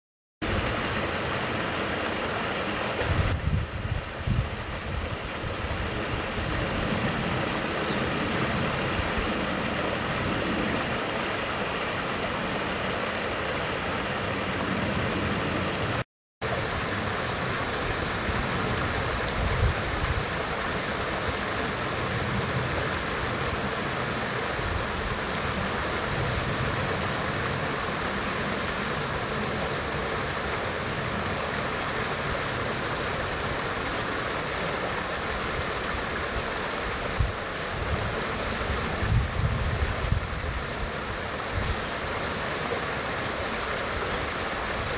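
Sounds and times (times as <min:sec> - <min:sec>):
running water: 0:00.4 - 0:44.9
high-pitched bird calls: 0:25.6 - 0:26.3, 0:34.2 - 0:34.8, 0:40.8 - 0:41.2.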